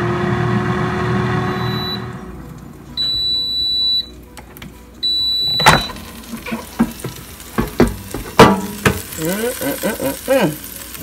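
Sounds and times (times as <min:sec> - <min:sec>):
air fryer beeping: 0:00.0 - 0:11.0
ribs sizzling in hot basket: 0:04.7 - 0:11.0
basket clunk: 0:05.5 - 0:09.1.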